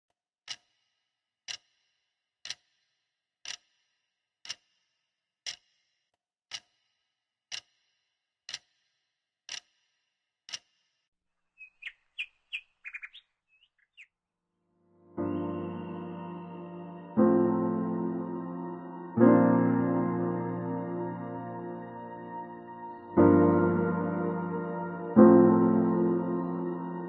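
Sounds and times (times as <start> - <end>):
clock ticking: 0.5 - 0.7, 1.5 - 1.7, 2.4 - 2.8, 3.4 - 3.7, 4.4 - 4.7, 5.5 - 5.8, 6.5 - 6.8, 7.5 - 7.8, 8.5 - 8.8, 9.5 - 9.8
bird chirping: 11.5 - 14.2, 15.2 - 19.2.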